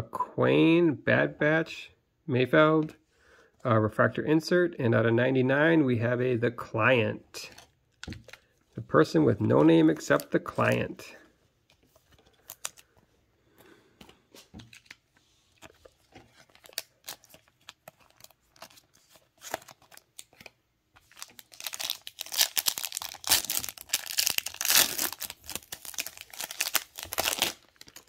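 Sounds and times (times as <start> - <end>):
card pack wrapper tearing and crinkling: 12.2 - 12.9, 14.6 - 28.0.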